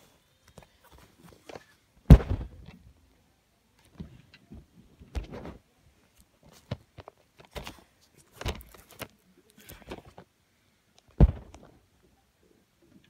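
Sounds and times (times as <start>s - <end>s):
loud thump: 2.1s - 2.7s, 11.2s - 11.7s
camera handling rustles and knocks: 6.5s - 9.1s.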